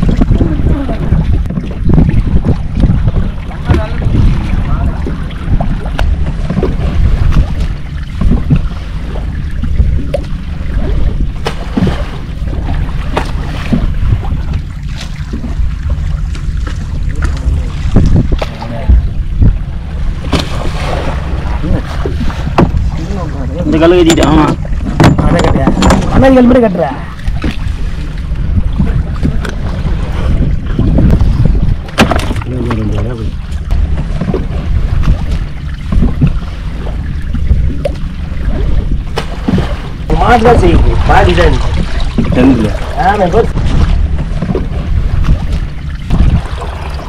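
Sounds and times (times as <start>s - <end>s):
boat engine low rumble: 0.0s - 47.0s
wind buffeting microphone: 0.0s - 47.0s
sharp knocks: 22.5s - 22.8s, 24.0s - 26.3s, 31.9s - 32.4s.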